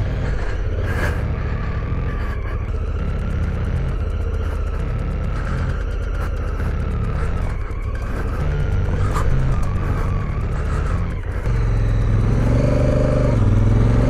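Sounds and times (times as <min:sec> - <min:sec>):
motorcycle engine under load: 0:00.0 - 0:14.0.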